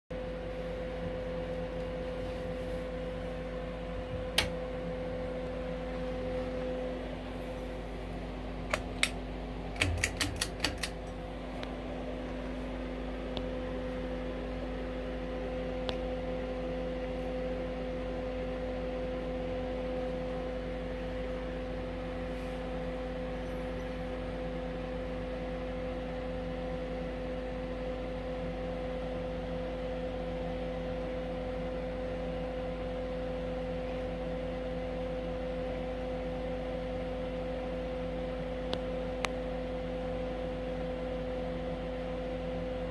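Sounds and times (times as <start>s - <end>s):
ceiling fan whirring: 0.1s - 42.9s
space heater humming: 0.1s - 42.9s
quick clicks: 9.8s - 11.2s.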